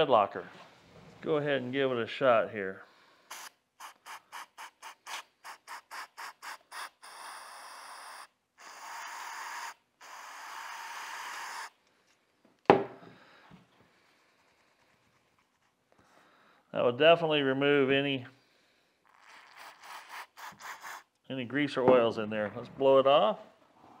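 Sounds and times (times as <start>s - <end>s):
aerosol can spraying: 3.3s - 7.4s, 8.6s - 11.7s, 19.1s - 21.1s.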